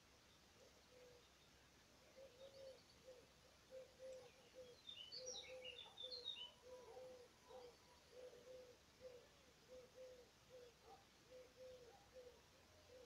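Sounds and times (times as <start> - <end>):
songbird twittering: 2.1 - 10.8.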